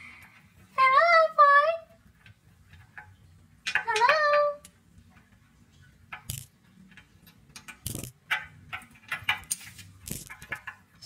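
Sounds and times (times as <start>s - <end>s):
plastic toy tapping on glass: 2.9s - 4.8s.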